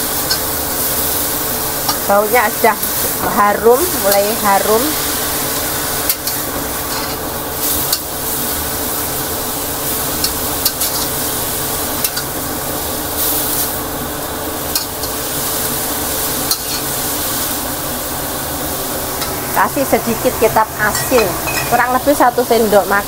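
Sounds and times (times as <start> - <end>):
food sizzling in a wok: 0.0 - 23.0
spatula scraping a wok: 5.8 - 9.2, 10.2 - 11.2, 14.8 - 17.6.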